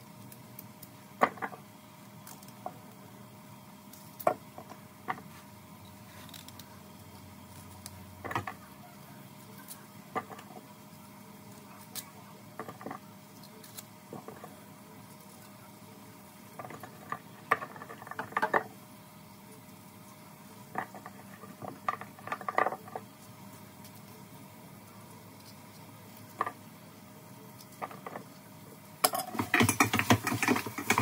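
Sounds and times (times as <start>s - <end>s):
faint steady hum: 0.0s - 31.0s
objects clicking and knocking: 1.2s - 1.6s, 7.8s - 8.7s, 9.7s - 10.6s, 12.0s - 14.5s, 16.6s - 18.7s, 20.7s - 23.1s, 25.4s - 26.6s, 27.6s - 28.3s, 29.0s - 31.0s.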